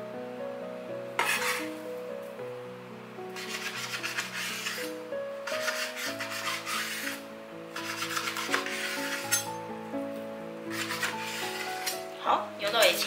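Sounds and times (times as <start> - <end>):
background music: 0.0 - 13.0
knife sawing through meat: 1.2 - 1.7, 3.4 - 4.9, 5.5 - 7.2, 7.8 - 9.5, 10.7 - 12.0.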